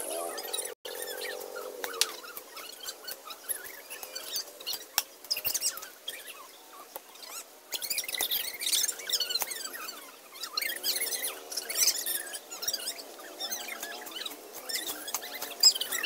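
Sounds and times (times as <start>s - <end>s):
high twittering bird chirps: 0.0s - 16.0s
hoe chopping and scraping weeds: 13.6s - 16.0s.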